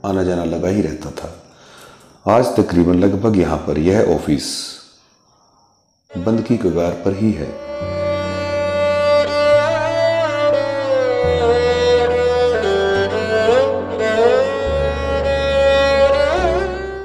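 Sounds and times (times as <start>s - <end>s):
slow violin melody: 6.1s - 17.0s.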